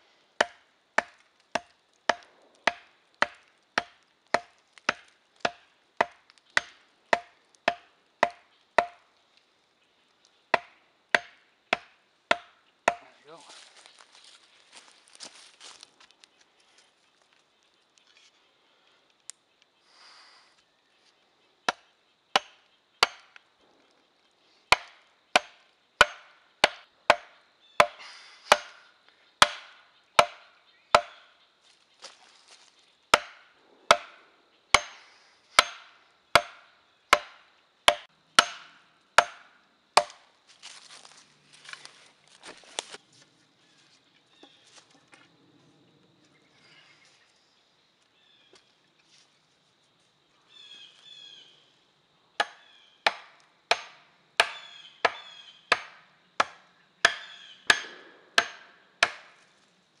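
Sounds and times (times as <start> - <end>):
axe hammering wooden stakes: 0.4 - 9.1, 10.5 - 13.2, 21.7 - 23.4, 24.7 - 31.4, 33.1 - 40.9, 52.4 - 59.4.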